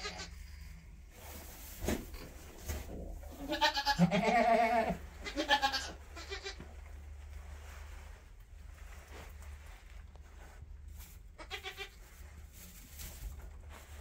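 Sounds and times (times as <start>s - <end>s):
goat bleating: 0.0s - 0.3s, 3.3s - 6.6s, 11.4s - 12.0s.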